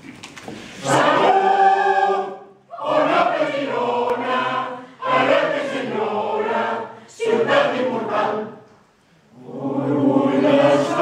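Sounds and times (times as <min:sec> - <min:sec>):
mixed choir singing: 0:00.8 - 0:11.0.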